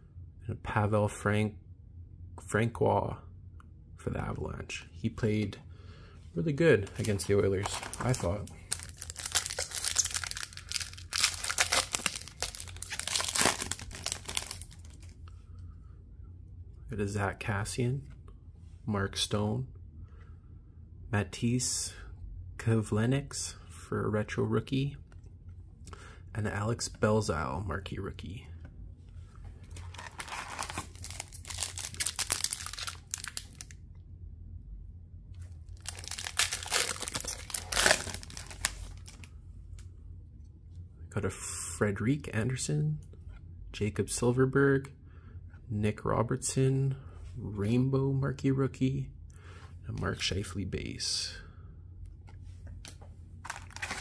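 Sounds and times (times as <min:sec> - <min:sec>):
wrapper crinkling and tearing: 0:07.0 - 0:15.2, 0:29.7 - 0:33.8, 0:35.7 - 0:39.3, 0:53.4 - 0:54.0.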